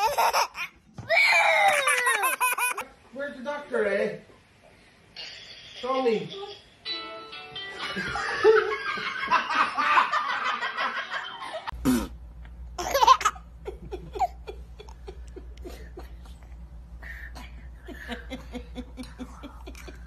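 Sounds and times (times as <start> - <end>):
baby laughing in its sleep: 0.0 - 0.8, 1.7 - 2.8, 12.8 - 16.5
faint steady hum: 6.3 - 20.0
hearty laughter: 13.6 - 16.5, 17.4 - 20.0.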